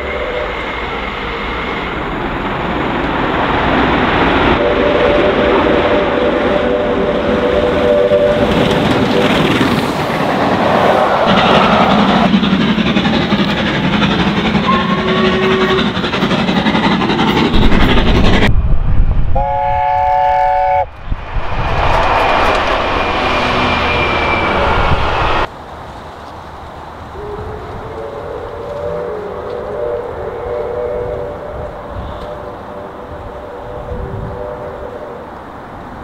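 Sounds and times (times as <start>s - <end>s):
steam whistle: 0.0s - 1.1s, 4.5s - 9.5s, 14.6s - 15.9s, 19.4s - 20.9s, 27.2s - 35.3s
steam train running: 0.0s - 36.0s
thin high whistle: 23.5s - 25.3s.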